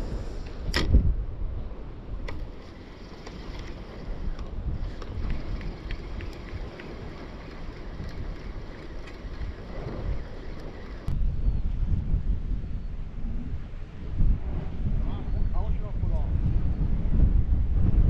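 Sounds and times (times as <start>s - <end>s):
wind buffeting microphone: 0.0s - 18.0s
sea wash: 2.4s - 11.1s.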